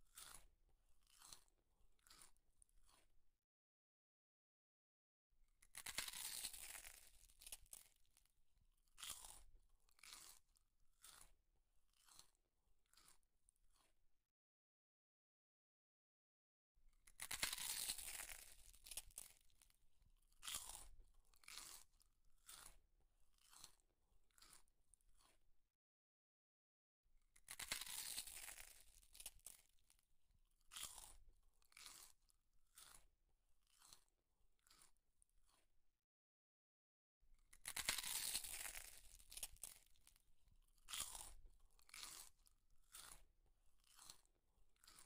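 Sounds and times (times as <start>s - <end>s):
crunchy bite: 0.0s - 3.1s, 5.7s - 7.9s, 9.0s - 10.4s, 11.0s - 11.3s, 11.9s - 13.2s, 17.2s - 19.7s, 20.4s - 24.6s, 27.4s - 29.6s, 30.7s - 34.9s, 37.6s - 40.2s, 40.8s - 43.2s, 43.8s - 45.0s
crunchy chewing: 0.0s - 3.1s, 5.6s - 8.3s, 8.9s - 14.0s, 17.0s - 25.4s, 27.4s - 30.0s, 30.6s - 35.7s, 37.5s - 45.0s.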